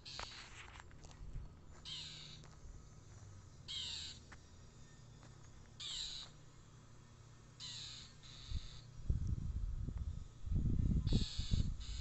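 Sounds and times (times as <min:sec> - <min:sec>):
bird giving harsh alarm calls: 0:01.8 - 0:02.4, 0:03.7 - 0:04.3, 0:05.8 - 0:06.3, 0:07.6 - 0:08.9, 0:11.1 - 0:12.0.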